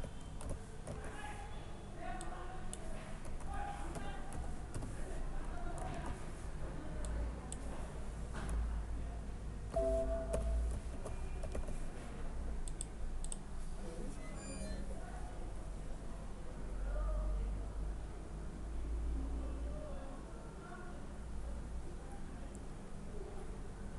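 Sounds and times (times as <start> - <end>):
keyboard typing: 0.0 - 1.3, 2.7 - 6.2, 9.8 - 11.9
mouse clicks: 12.6 - 13.4.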